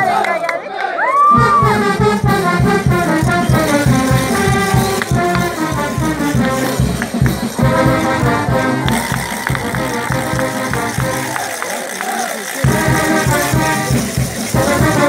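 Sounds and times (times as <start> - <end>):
band dance music: 1.3 - 15.0.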